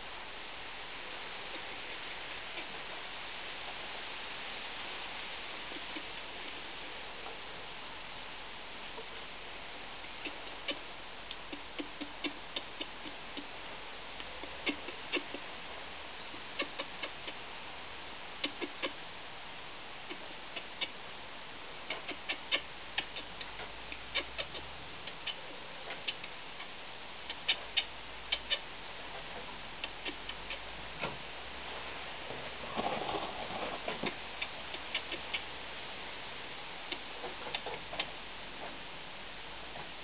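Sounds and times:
squirrel scuffle: 0:29.0 - 0:35.4.

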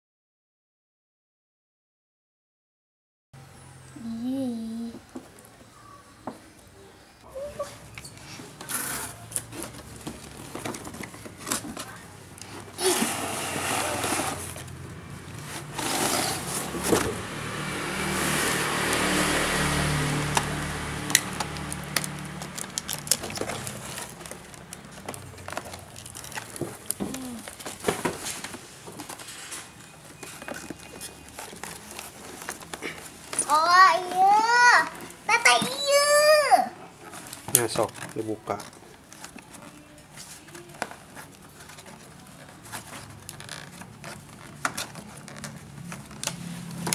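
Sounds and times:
packaging rustling and scraping: 0:08.1 - 0:17.4, 0:20.1 - 0:35.8, 0:36.9 - 0:46.9.

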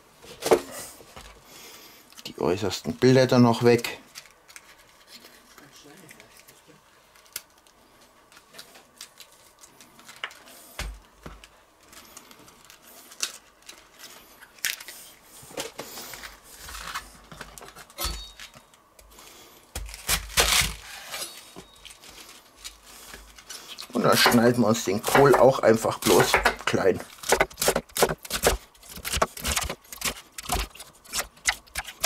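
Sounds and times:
cabbage leaves snapping and tearing: 0:19.8 - 0:20.8, 0:27.2 - 0:32.0.

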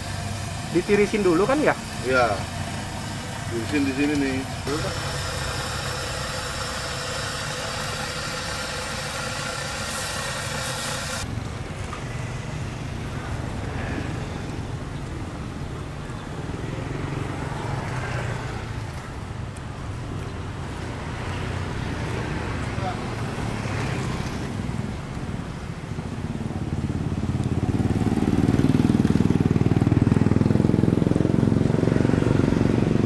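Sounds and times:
oil sizzling in a wok: 0:00.0 - 0:11.3.

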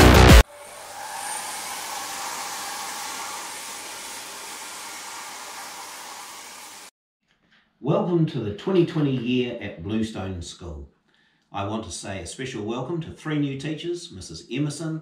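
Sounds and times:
electronic music: 0:00.0 - 0:00.5
hissing rushing sound effect: 0:00.1 - 0:06.9.

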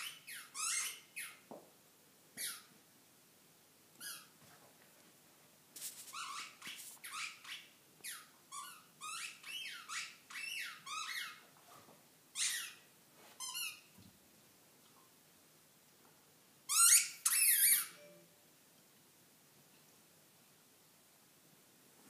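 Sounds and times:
squeaky ball squeaks: 0:00.0 - 0:01.4, 0:02.4 - 0:02.7, 0:06.1 - 0:11.4, 0:12.4 - 0:12.8, 0:13.4 - 0:13.8, 0:16.7 - 0:18.1.

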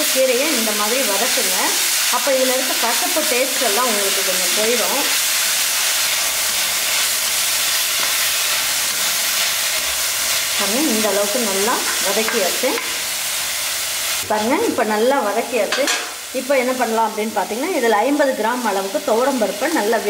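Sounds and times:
greens sizzling in oil: 0:00.0 - 0:20.0
spatula scraping the pan: 0:05.8 - 0:10.4.

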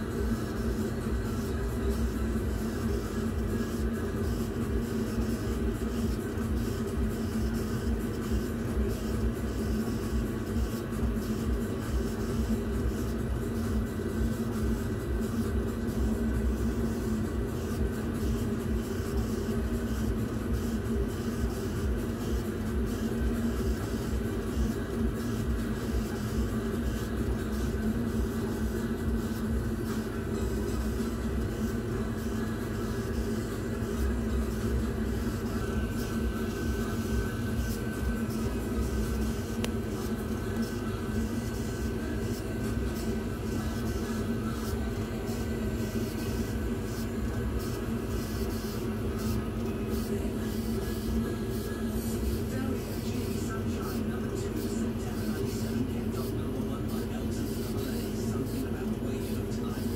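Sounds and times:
laser engraver humming: 0:00.0 - 0:59.9.

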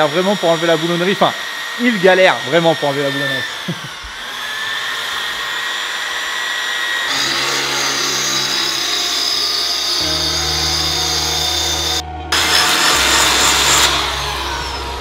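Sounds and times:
electric power tool running: 0:00.0 - 0:15.0.

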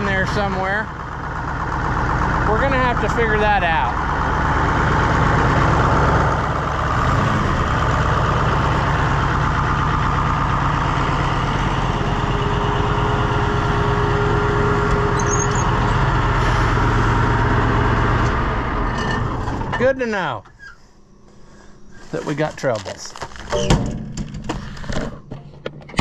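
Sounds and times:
diesel engine running: 0:00.0 - 0:23.6.

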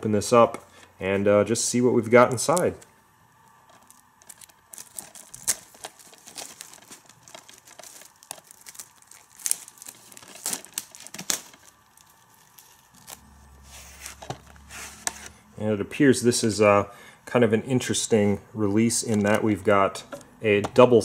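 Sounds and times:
plastic wrap crinkling: 0:02.0 - 0:15.3.

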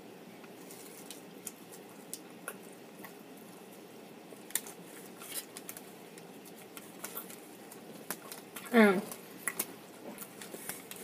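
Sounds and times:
low room hum: 0:00.0 - 0:11.0
person chewing food: 0:04.4 - 0:11.0.

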